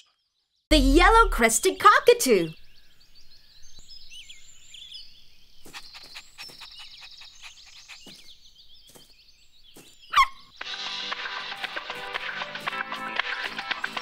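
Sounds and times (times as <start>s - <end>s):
small birds chirping: 0.0s - 14.0s
rapid bird trill: 0.8s - 12.7s.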